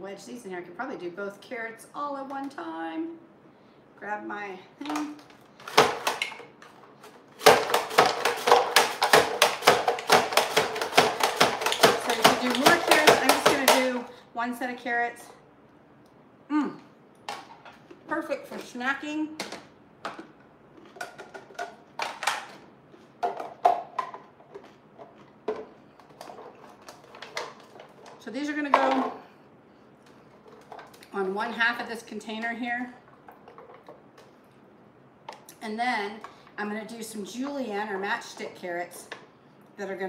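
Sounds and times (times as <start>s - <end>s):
plastic containers clacking: 4.8s - 14.1s, 19.4s - 29.2s, 33.1s - 34.4s.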